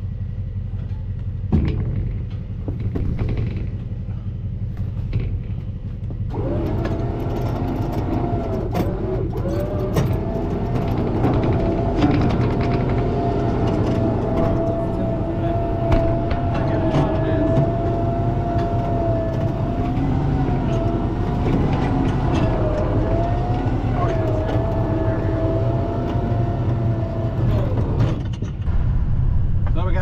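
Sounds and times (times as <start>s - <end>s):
low steady rumble: 0.0s - 30.0s
electric winch motor whining: 6.2s - 28.3s.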